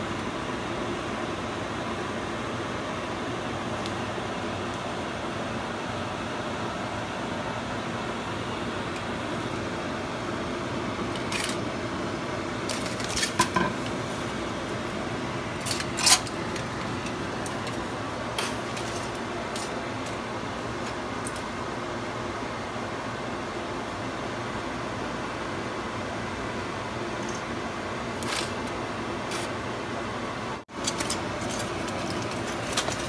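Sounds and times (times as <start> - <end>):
aluminium foil crinkling: 12.6 - 13.4, 15.5 - 19.8, 30.8 - 33.0.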